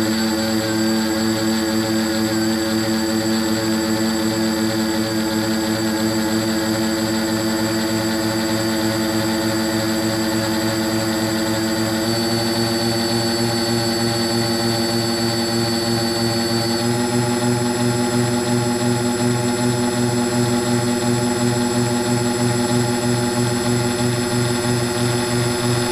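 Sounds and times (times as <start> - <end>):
drone propellers whining: 9.0 - 25.9.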